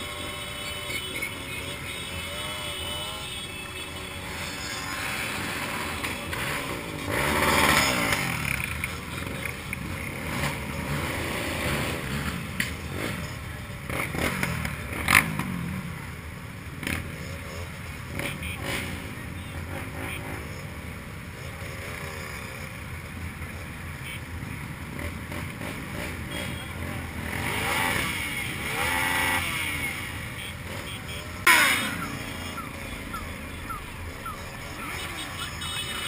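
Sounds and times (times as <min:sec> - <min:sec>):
motorcycle engines idling and revving: 0:00.0 - 0:36.0
people talking: 0:32.0 - 0:36.0.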